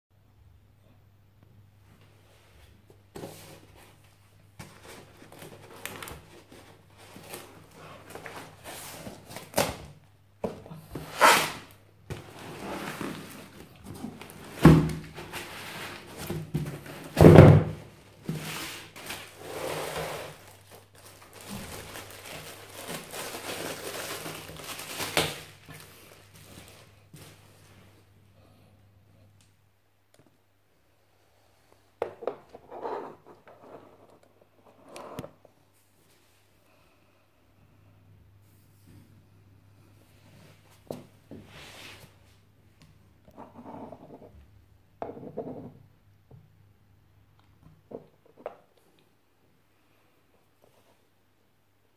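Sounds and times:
cardboard flaps rustling and scraping: 0:03.1 - 0:27.4.

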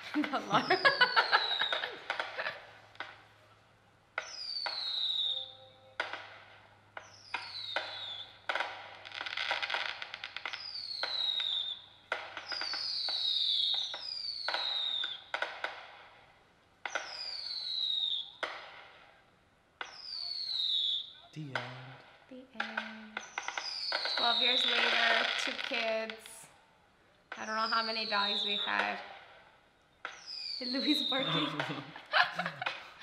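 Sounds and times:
firework bangs and crackling: 0:00.0 - 0:03.2, 0:04.2 - 0:05.4, 0:06.0 - 0:19.2, 0:19.8 - 0:26.4, 0:27.3 - 0:33.0
firework whistles: 0:00.5 - 0:02.5, 0:04.2 - 0:16.2, 0:16.9 - 0:19.1, 0:19.8 - 0:21.2, 0:23.2 - 0:25.8, 0:27.4 - 0:29.2, 0:30.1 - 0:33.0.

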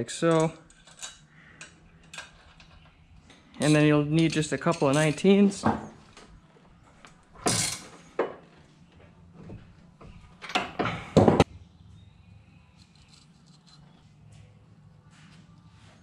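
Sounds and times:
steel parts clunking and scraping: 0:00.2 - 0:06.0, 0:07.4 - 0:08.4.

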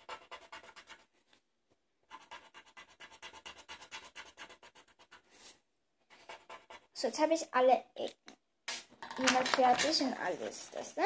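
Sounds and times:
marker scratching on paper: 0:00.0 - 0:01.2, 0:02.0 - 0:07.2.

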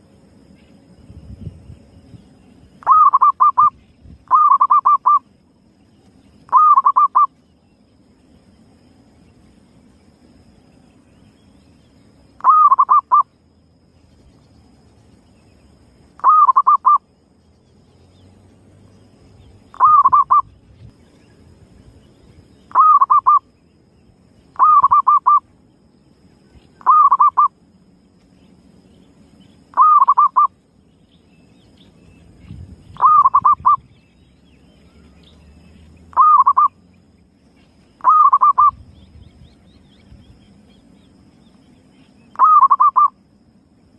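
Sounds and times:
dove cooing: 0:02.8 - 0:03.7, 0:04.3 - 0:05.2, 0:06.5 - 0:07.3, 0:12.4 - 0:13.2, 0:16.2 - 0:17.0, 0:19.7 - 0:20.5, 0:22.7 - 0:23.4, 0:24.6 - 0:25.4, 0:26.8 - 0:27.5, 0:29.7 - 0:30.5, 0:32.9 - 0:33.9, 0:36.1 - 0:36.7, 0:38.0 - 0:38.8, 0:42.3 - 0:43.2.

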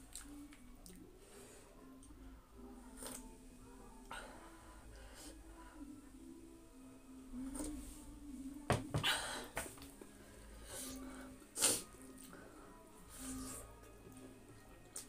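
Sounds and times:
mouth noises of eating: 0:00.0 - 0:01.2, 0:02.8 - 0:04.2, 0:10.8 - 0:12.4, 0:13.0 - 0:15.0
mug knocking on table: 0:08.7 - 0:09.7.

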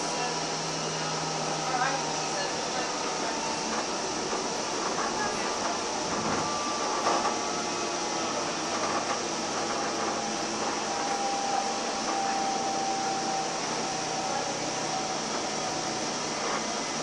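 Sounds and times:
faint high whine: 0:00.0 - 0:17.0
light rail car running on track: 0:00.0 - 0:17.0.

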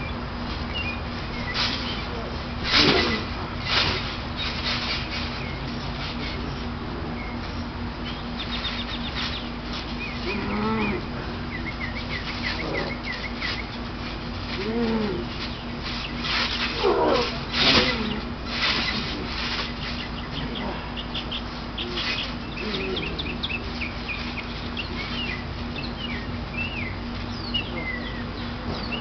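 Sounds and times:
small birds chirping: 0:00.0 - 0:29.0
bodies thudding on trampoline: 0:01.4 - 0:06.6, 0:12.2 - 0:20.8.

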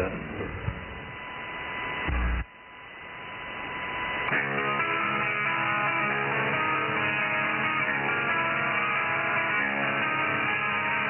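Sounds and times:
radio static hiss: 0:00.0 - 0:04.8
guitar music on radio: 0:01.9 - 0:02.5, 0:04.2 - 0:11.0.

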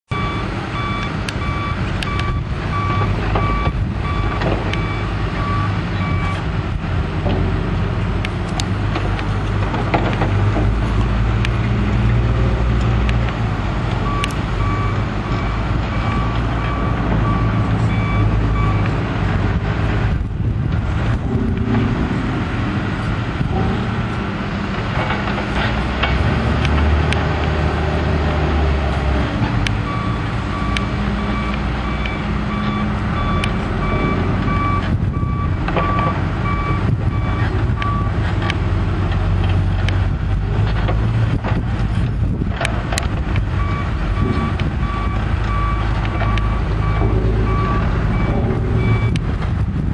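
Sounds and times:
backup alarm beeping: 0:00.1 - 0:06.4, 0:14.1 - 0:19.0, 0:29.9 - 0:38.1, 0:43.6 - 0:49.2
diesel engine running: 0:00.1 - 0:49.9.

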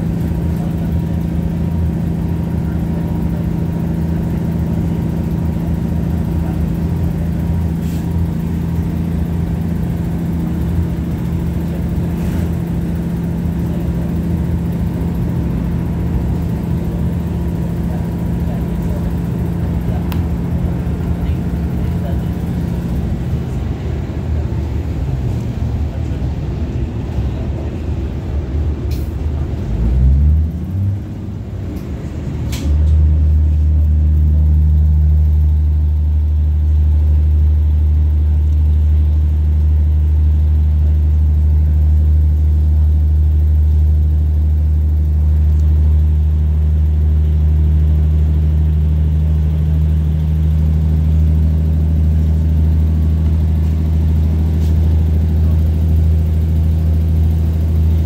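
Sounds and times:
steady low drone: 0:00.0 - 0:58.0
train engine and wheel rumble: 0:00.0 - 0:58.0
click: 0:32.5 - 0:33.0, 0:45.5 - 0:45.7.

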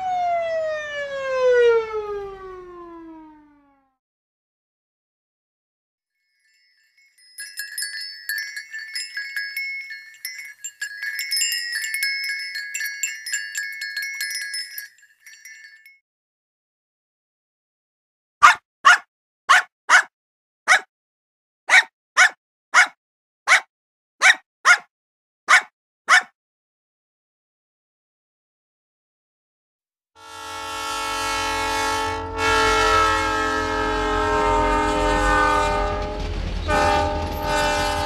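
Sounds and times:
metal wind chimes ringing: 0:06.3 - 0:16.0
puppy yapping: 0:18.4 - 0:20.1, 0:20.7 - 0:20.9, 0:21.7 - 0:24.9, 0:25.5 - 0:26.3.

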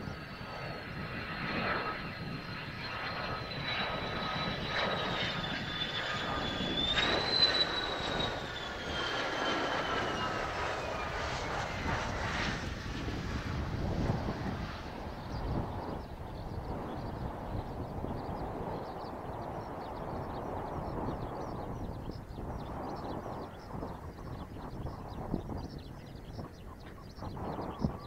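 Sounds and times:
jet engine whine: 0:00.0 - 0:28.0.

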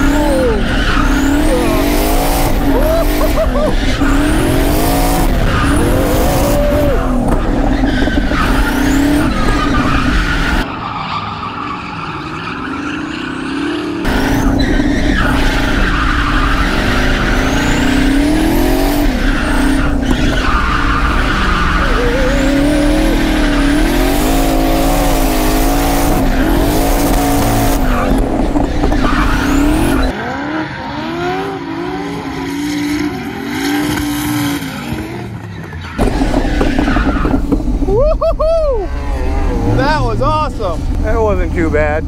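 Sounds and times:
car engine revving: 0:00.0 - 0:10.7, 0:12.7 - 0:42.0
tyres skidding: 0:00.0 - 0:42.0.

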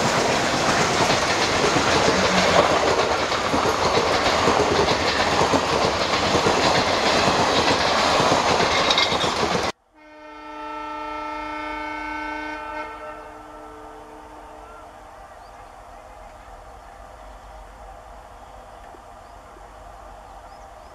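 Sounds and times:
train coaches passing at speed: 0:00.0 - 0:20.9
locomotive horn chord: 0:02.0 - 0:03.1, 0:09.9 - 0:15.0.

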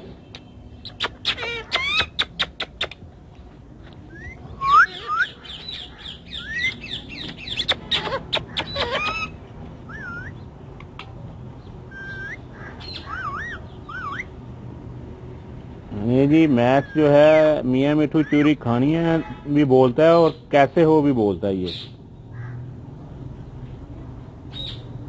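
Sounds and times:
parakeet chirping and squawking: 0:00.8 - 0:03.0, 0:04.2 - 0:10.6, 0:11.9 - 0:14.4, 0:16.7 - 0:19.5.

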